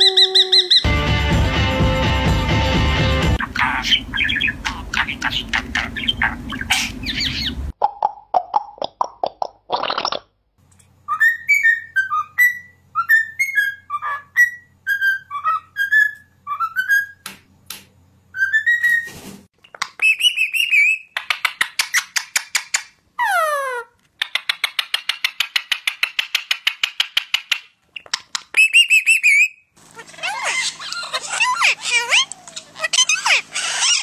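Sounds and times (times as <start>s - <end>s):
parrot call: 0.0s - 1.0s, 3.4s - 7.7s, 28.6s - 34.0s
parakeets chattering and clicking: 3.4s - 7.7s, 19.6s - 23.0s, 24.1s - 28.7s, 29.9s - 34.0s
cockatiel whistling a tune: 11.1s - 17.2s, 18.3s - 19.1s, 20.0s - 21.1s, 28.6s - 29.6s.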